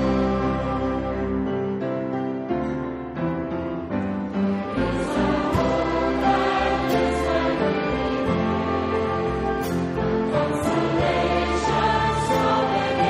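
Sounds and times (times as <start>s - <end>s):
choir singing: 0.0s - 1.4s, 4.4s - 13.0s
instrumental accompaniment: 0.0s - 13.0s.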